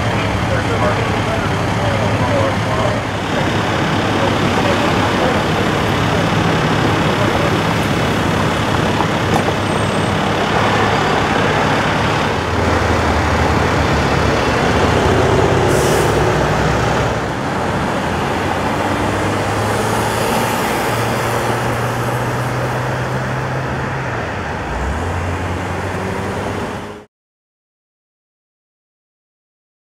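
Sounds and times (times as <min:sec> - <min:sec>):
traffic driving past: 0:00.0 - 0:27.1.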